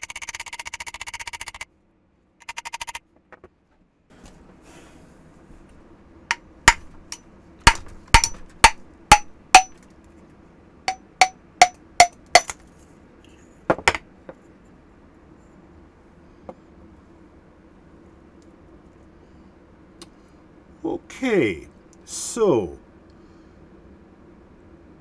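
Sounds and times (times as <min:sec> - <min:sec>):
sharp metal knocks: 0:06.3 - 0:09.8, 0:10.9 - 0:12.6.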